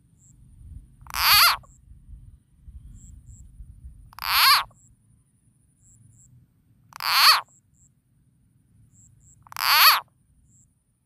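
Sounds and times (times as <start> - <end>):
frog call croaks: 1.0 - 1.8, 4.1 - 4.9, 6.9 - 7.9, 9.0 - 10.6.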